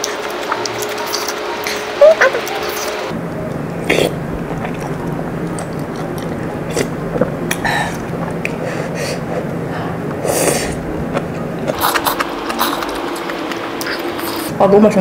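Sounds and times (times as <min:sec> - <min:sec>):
chewing: 0:00.0 - 0:03.1, 0:03.8 - 0:08.6, 0:10.5 - 0:14.6
steady low hum: 0:00.0 - 0:15.0
noodle slurping: 0:11.7 - 0:14.6.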